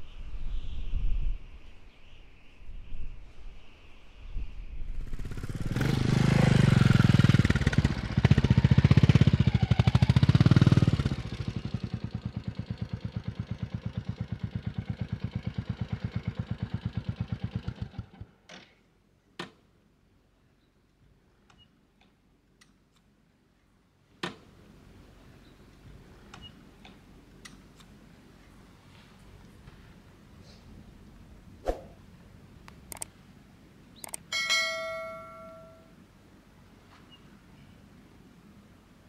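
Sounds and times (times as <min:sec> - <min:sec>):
motorcycle engine revving and idling: 0:05.0 - 0:18.4
sharp clicks: 0:32.7 - 0:33.2, 0:34.0 - 0:34.3.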